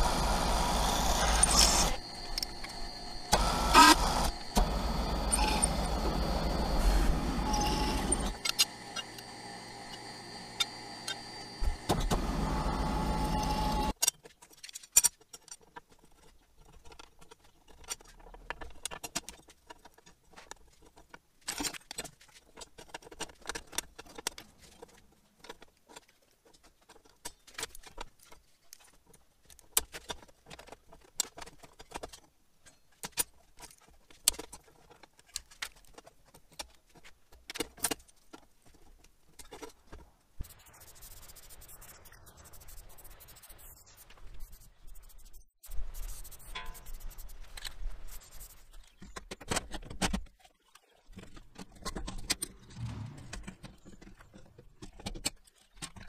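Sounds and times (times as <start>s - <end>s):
spray paint can hissing: 40.4s - 47.4s.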